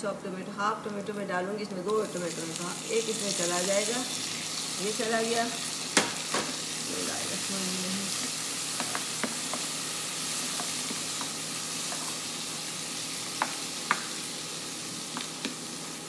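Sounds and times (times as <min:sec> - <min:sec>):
food sizzling in hot oil: 0:01.7 - 0:16.0
spatula scraping and tapping pan: 0:08.2 - 0:09.7, 0:10.4 - 0:12.2.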